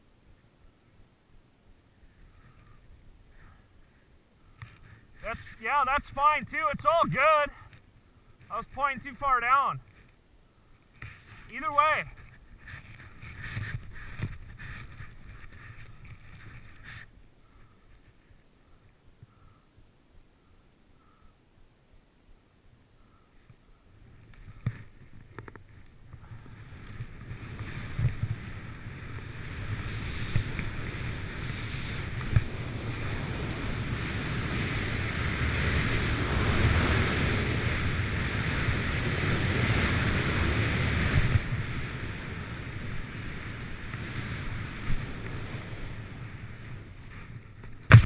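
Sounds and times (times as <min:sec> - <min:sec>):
snowboard rushing through powder snow: 0:26.3 - 0:48.0
short thumps: 0:47.8 - 0:48.0.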